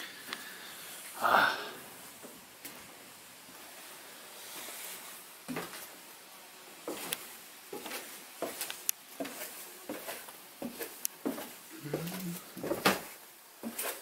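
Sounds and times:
footsteps on wooden stairs: 0:07.7 - 0:13.8.

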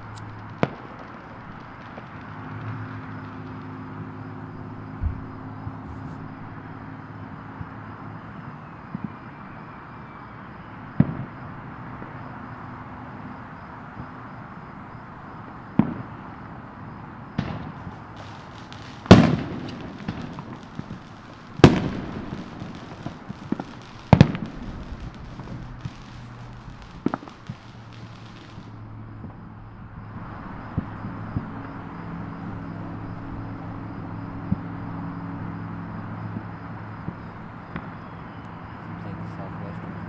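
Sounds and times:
fireworks bangs: 0:00.0 - 0:06.7, 0:07.5 - 0:09.7, 0:10.9 - 0:12.3, 0:15.7 - 0:32.5, 0:36.4 - 0:40.0
fireworks crackling: 0:00.0 - 0:09.6, 0:15.7 - 0:33.8, 0:35.8 - 0:40.0.

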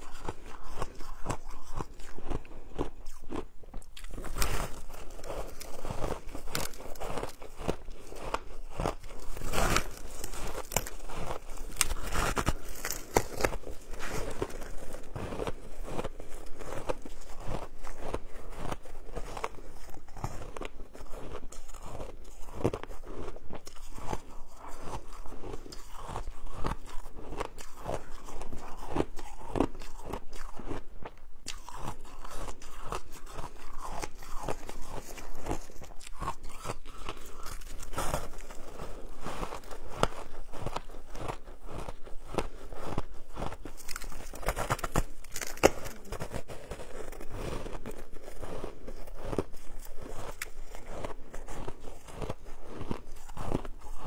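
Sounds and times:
crunching and chewing ice: 0:00.0 - 0:54.0.

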